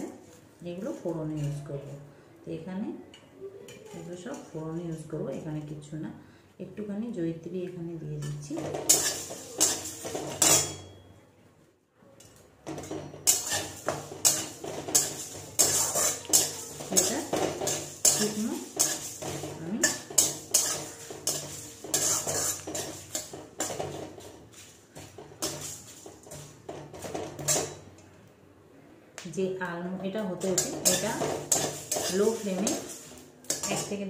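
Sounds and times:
metal spatula scraping metal pan: 0:08.2 - 0:11.0, 0:12.6 - 0:27.9, 0:30.3 - 0:34.0.

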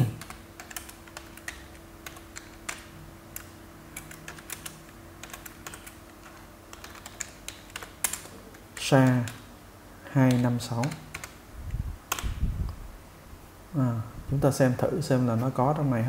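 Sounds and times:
keyboard keys clicking: 0:00.0 - 0:09.4, 0:10.2 - 0:11.4
faint steady hum: 0:00.0 - 0:16.0.

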